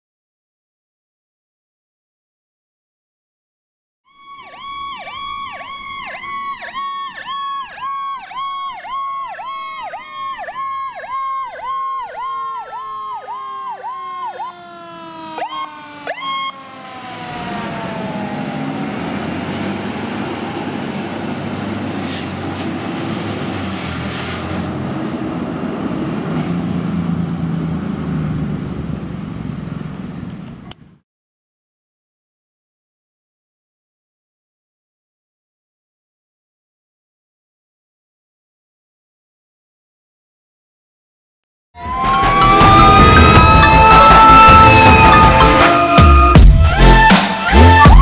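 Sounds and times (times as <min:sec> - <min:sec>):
pulsing electronic siren: 0:04.1 - 0:21.8, 0:41.8 - 0:48.0
siren tone sliding down: 0:04.1 - 0:22.2, 0:41.8 - 0:48.0
fire truck engines rumbling: 0:04.2 - 0:31.0, 0:41.8 - 0:48.0.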